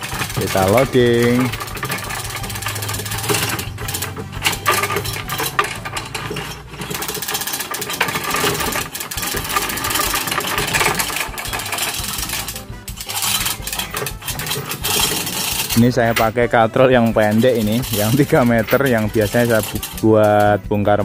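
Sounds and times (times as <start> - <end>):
chain hoist clicking and rattling: 0.0 - 21.0.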